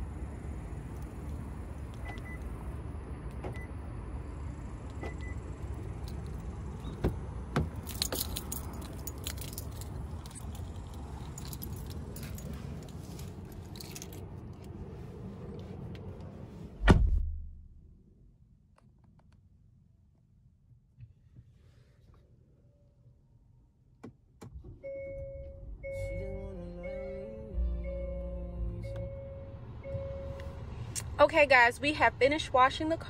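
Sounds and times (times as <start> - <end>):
car door clicks and jingles: 1.9 - 2.5, 4.8 - 13.0
low rumble: 13.4 - 18.5
car door shutting thump: 16.8 - 17.5.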